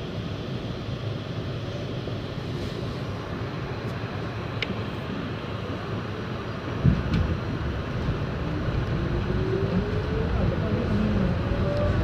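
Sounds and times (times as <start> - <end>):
subway train rumbling: 0.0 - 12.0
rising motor whine: 8.3 - 12.0.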